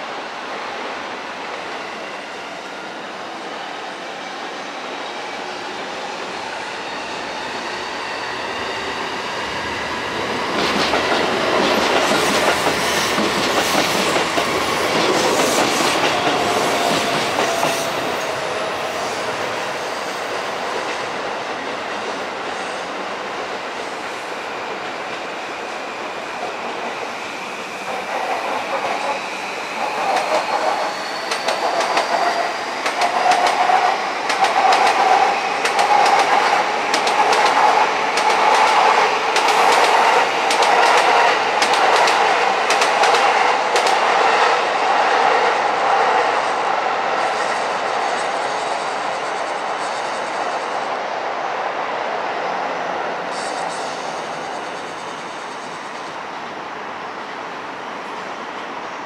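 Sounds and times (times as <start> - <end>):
electric train whine: 0.0 - 59.0
rhythmic train clacking: 6.1 - 50.8
train wheels clicking over rail joints: 10.4 - 18.4, 27.9 - 44.1.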